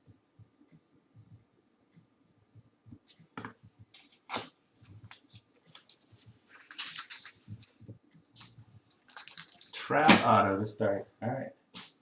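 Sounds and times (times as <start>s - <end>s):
crinkly plastic rustles: 5.0s - 7.8s, 8.4s - 9.9s.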